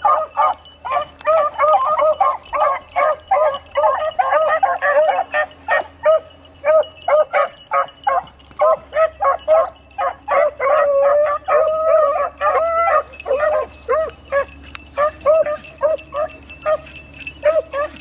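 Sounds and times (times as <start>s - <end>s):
dogs baying and barking: 0.0s - 18.0s.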